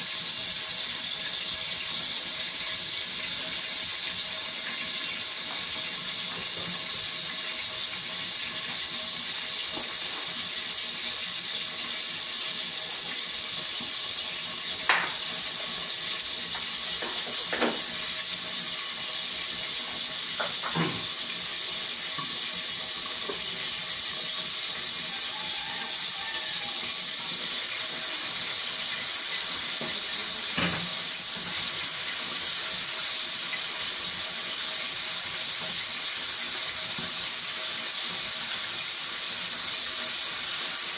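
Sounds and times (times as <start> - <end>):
vegetables simmering hiss: 0.0 - 40.9.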